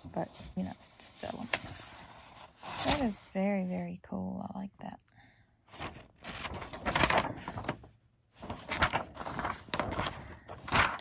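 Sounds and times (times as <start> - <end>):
paper rustling and crinkling: 0.0 - 3.6, 5.7 - 11.0.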